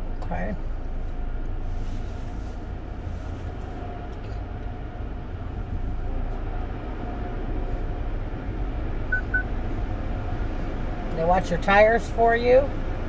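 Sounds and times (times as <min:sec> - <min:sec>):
car wash machinery rumble: 0:00.0 - 0:13.0
short high beeps: 0:09.1 - 0:09.5.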